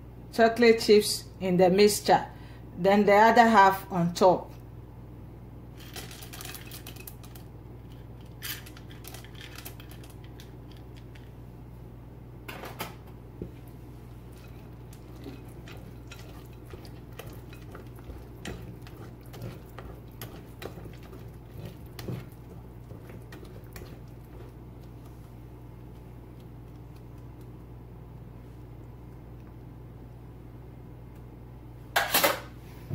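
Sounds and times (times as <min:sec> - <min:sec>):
chocolate chips rattling into bowl: 0:05.8 - 0:07.4, 0:08.4 - 0:10.5.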